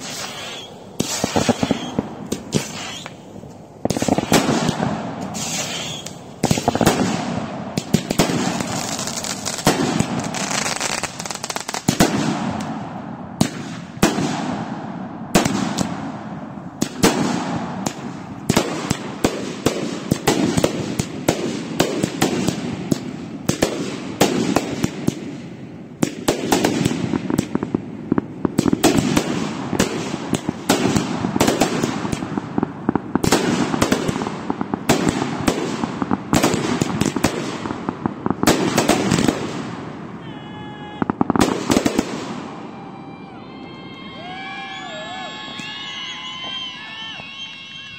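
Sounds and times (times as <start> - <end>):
rushing hiss of fireworks: 0.0 - 14.6
fireworks pops and bangs: 0.0 - 40.0, 41.0 - 42.6.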